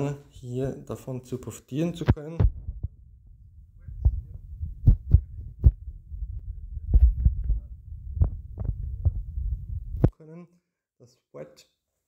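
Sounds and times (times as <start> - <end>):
low rumble: 2.5 - 10.1.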